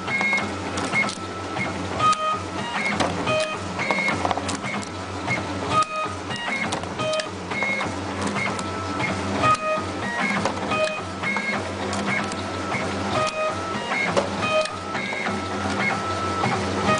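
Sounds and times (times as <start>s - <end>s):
feed motors whining: 0.0s - 16.9s
low machine hum: 0.0s - 16.9s.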